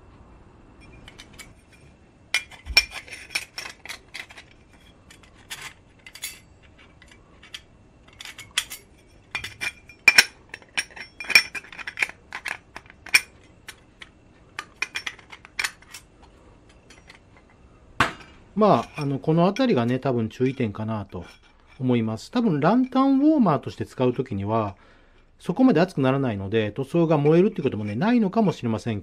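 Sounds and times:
metal plates clinking and scraping: 0.8s - 23.2s.

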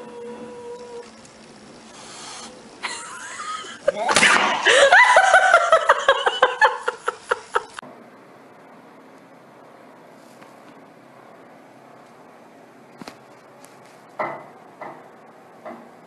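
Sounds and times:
person laughing: 2.8s - 7.8s.

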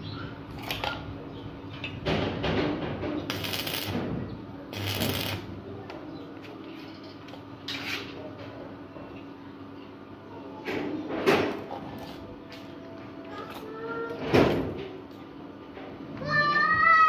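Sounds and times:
crackling welding arc: 0.5s - 1.0s, 3.3s - 4.1s, 4.7s - 5.5s.

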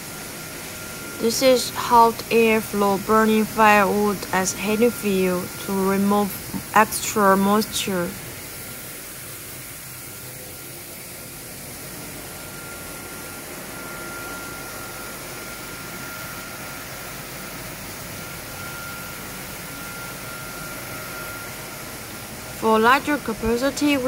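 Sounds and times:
blower air whooshing: 0.0s - 10.2s
faint steady whine: 0.0s - 24.0s.

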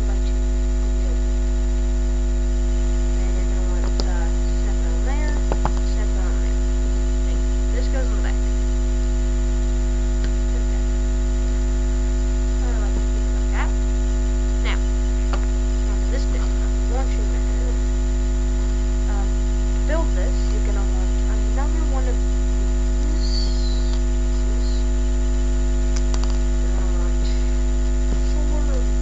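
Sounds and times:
electrical mains hum: 0.0s - 29.0s
clicks: 3.8s - 4.2s, 5.4s - 6.0s, 25.9s - 26.5s
faint short chirps: 23.0s - 24.9s.

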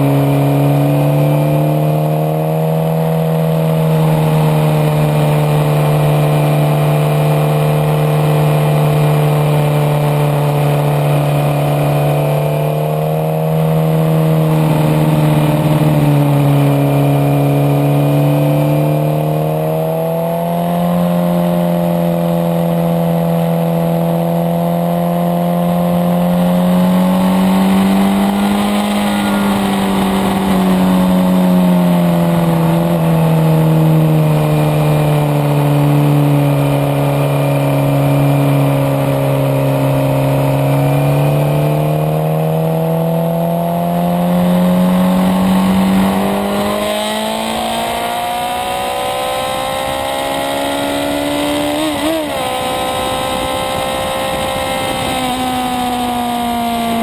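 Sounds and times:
motorcycle engine pulling: 25.7s - 42.1s, 44.2s - 57.0s
wind noise: 26.6s - 39.2s, 44.7s - 57.0s.

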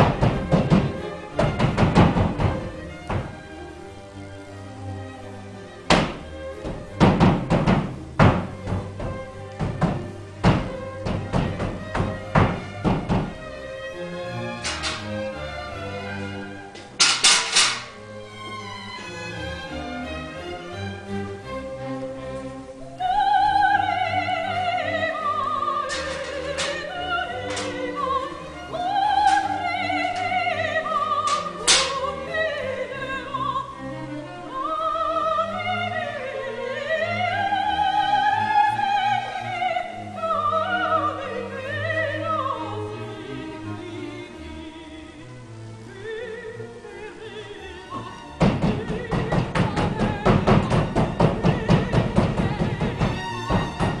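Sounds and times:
sharp knocks: 0.0s - 3.4s, 5.9s - 13.5s, 48.4s - 54.0s
operatic singing with orchestra: 0.0s - 54.0s.

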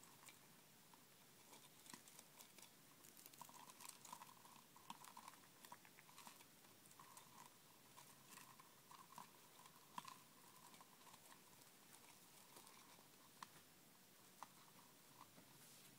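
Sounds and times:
hamster nibbling chew ball: 0.0s - 15.9s.

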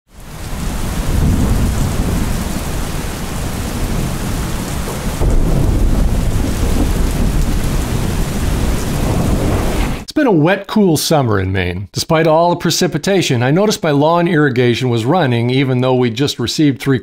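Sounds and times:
rain pouring: 0.1s - 10.1s
low rumble of thunder: 0.3s - 10.1s.

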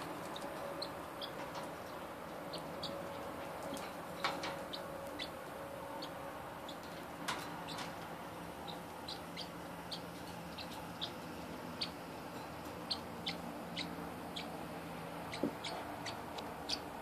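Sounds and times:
parrot high chirps: 8.7s - 11.2s.

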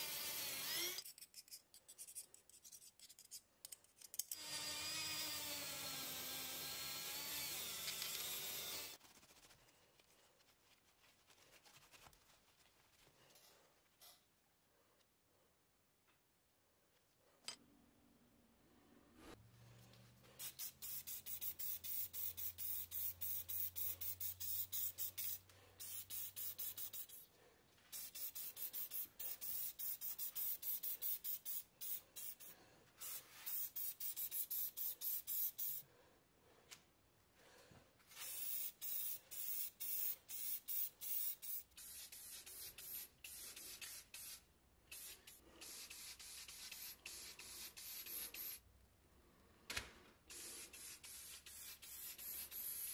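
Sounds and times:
spray paint hissing in bursts: 20.4s - 27.3s, 27.9s - 35.8s, 38.1s - 48.6s, 50.3s - 52.9s.

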